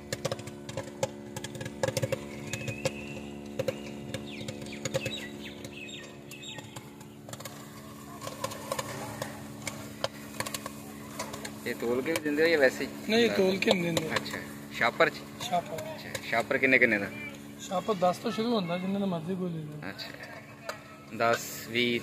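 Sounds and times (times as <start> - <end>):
kettle clicks and pops: 0.0 - 12.8, 13.6 - 17.4
popcorn machine humming: 0.0 - 22.0
birds chirping: 1.8 - 22.0.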